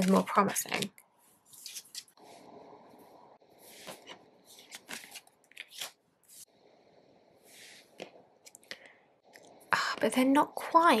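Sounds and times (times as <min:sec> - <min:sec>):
cards sliding on wooden table: 0:03.6 - 0:06.5.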